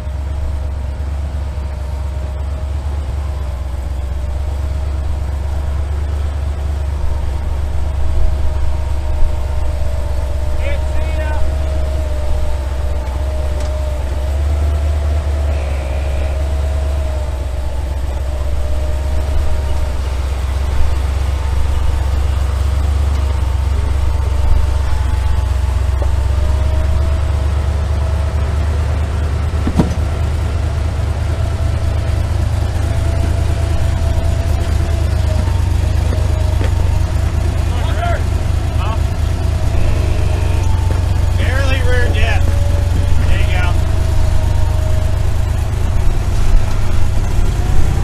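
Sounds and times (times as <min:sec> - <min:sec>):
engine running at low revs: 0:00.0 - 0:48.0
sharp knock: 0:29.6 - 0:30.1.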